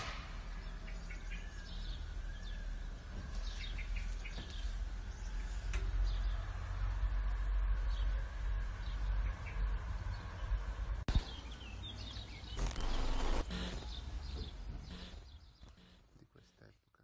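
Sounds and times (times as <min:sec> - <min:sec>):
birds chirping: 0:00.0 - 0:07.2, 0:07.8 - 0:16.8
rush of noise: 0:12.6 - 0:13.8.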